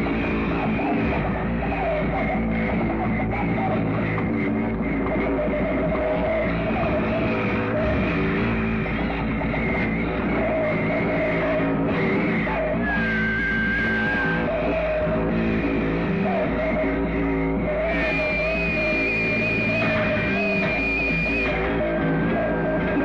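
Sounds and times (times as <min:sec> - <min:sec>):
harsh noise music: 0:00.0 - 0:23.0.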